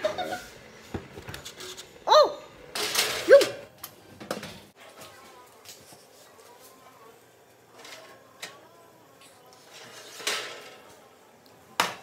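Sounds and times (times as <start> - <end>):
metal tray clattering: 2.7 - 3.6, 9.8 - 10.8.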